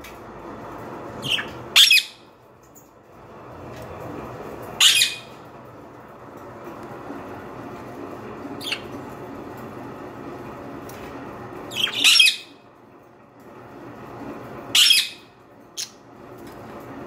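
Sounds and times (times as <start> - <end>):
budgerigars giving short calls: 1.2 - 2.2, 4.8 - 5.3, 11.7 - 12.4.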